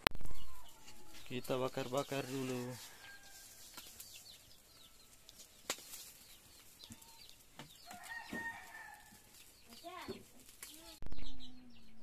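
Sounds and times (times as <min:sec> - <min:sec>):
wood fire crackling: 0:00.0 - 0:11.1
birds chirping: 0:00.0 - 0:12.0
fire pops: 0:05.3 - 0:11.2.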